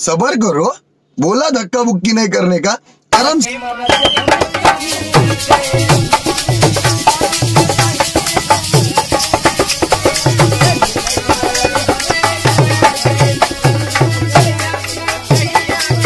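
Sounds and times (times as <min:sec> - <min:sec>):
dholak drum beating: 0:03.2 - 0:16.0
jingling metal percussion: 0:03.9 - 0:16.0.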